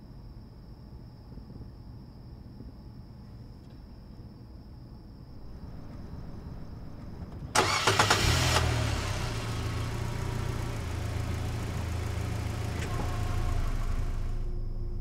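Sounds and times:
car engine starting and idling: 7.2 - 15.0.

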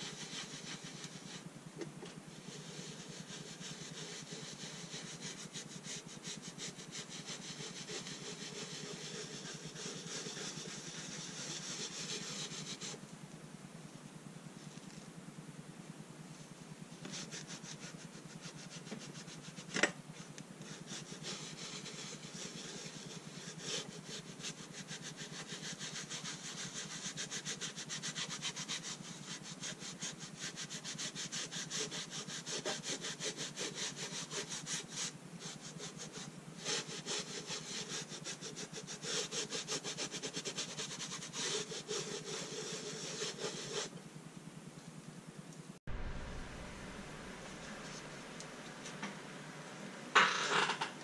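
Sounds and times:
abrasive pad scraping metal: 45.9 - 49.4.

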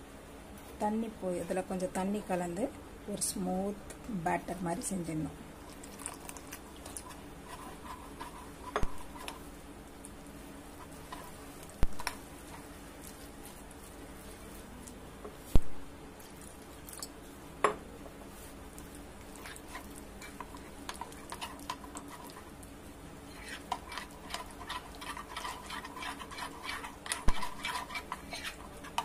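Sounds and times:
spoon stirring batter in bowl: 5.8 - 9.5, 18.4 - 22.7, 23.3 - 29.0.

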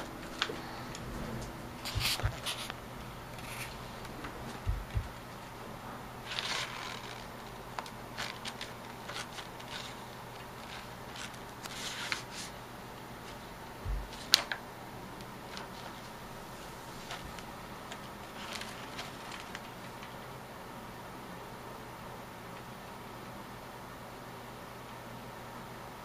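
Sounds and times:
paper rustling and crinkling: 0.0 - 5.3, 6.2 - 12.6, 13.2 - 14.6, 15.5 - 20.2
dull thumps: 0.5 - 5.4, 13.8 - 14.4.

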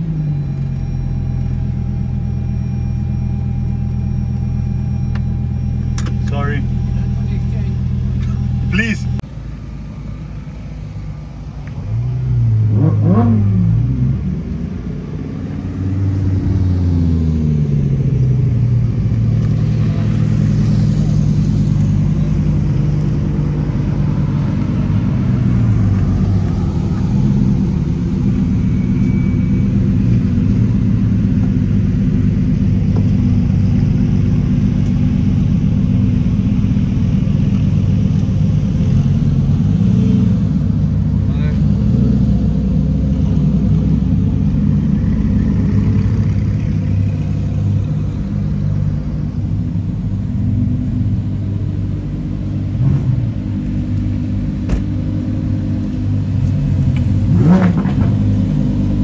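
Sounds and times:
car engines idling: 0.0 - 59.0
sports car engine revving: 11.9 - 59.0.

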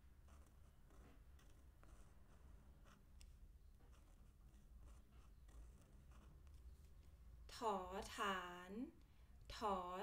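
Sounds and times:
felt-tip pen scratching on paper: 0.0 - 7.2.

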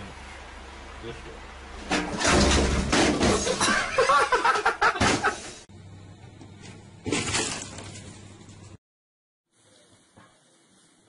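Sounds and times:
picture frame crashing onto drum kit: 1.9 - 3.7.

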